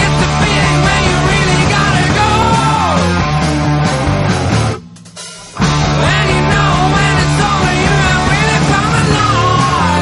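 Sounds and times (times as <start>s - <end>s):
person singing: 0.0s - 3.1s, 5.8s - 10.0s
bass line: 0.0s - 10.0s
loud rock music: 0.0s - 10.0s.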